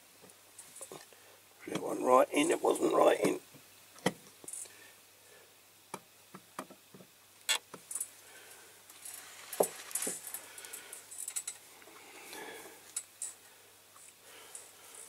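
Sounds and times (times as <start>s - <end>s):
faint rustling: 7.8s - 15.0s.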